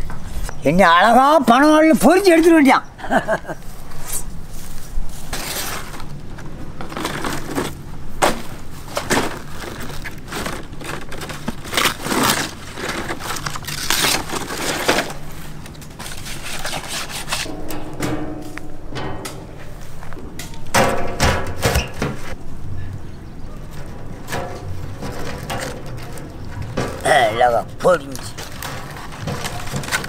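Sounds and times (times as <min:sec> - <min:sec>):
palm fronds rustling and snapping: 0:04.6 - 0:17.5, 0:23.7 - 0:30.0.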